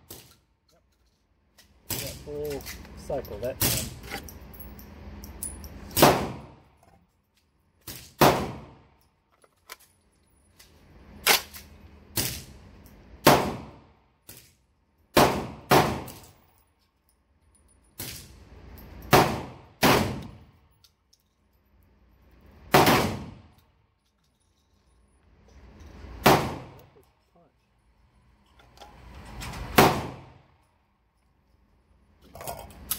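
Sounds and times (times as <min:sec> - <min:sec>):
shotgun shots with echo: 0:06.0 - 0:06.6, 0:08.2 - 0:08.8, 0:13.2 - 0:13.8, 0:15.2 - 0:16.1, 0:19.1 - 0:20.3, 0:22.7 - 0:23.4, 0:26.2 - 0:26.8, 0:29.8 - 0:30.4.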